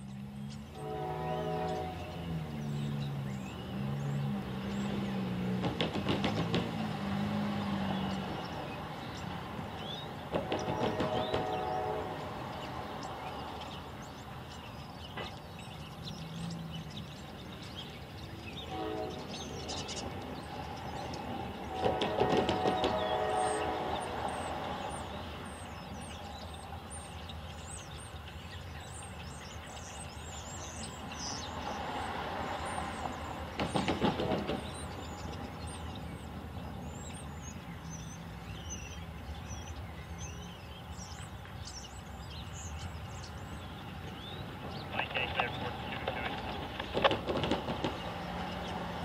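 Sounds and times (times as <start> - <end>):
small birds chirping: 0.0 - 49.0
locomotive horn: 0.7 - 2.5, 10.3 - 12.6, 18.6 - 19.7, 21.5 - 25.2
car clattering over rails: 5.5 - 7.8, 33.5 - 34.9, 46.0 - 49.0.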